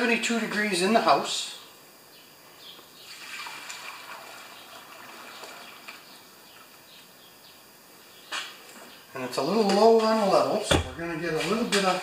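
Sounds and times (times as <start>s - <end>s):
liquid pouring into metal tank: 3.1s - 6.0s.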